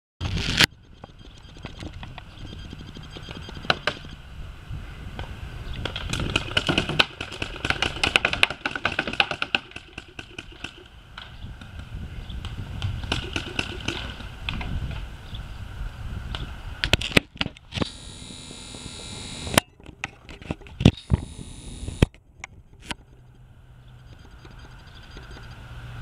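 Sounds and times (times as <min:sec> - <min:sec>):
paintball markers firing: 0:13.1 - 0:14.3.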